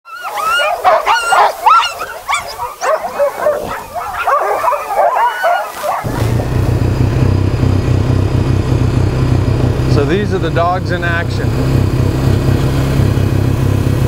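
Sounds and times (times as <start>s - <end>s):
sled dogs yelping and barking: 0.1s - 6.6s
atv engine running: 5.8s - 14.0s.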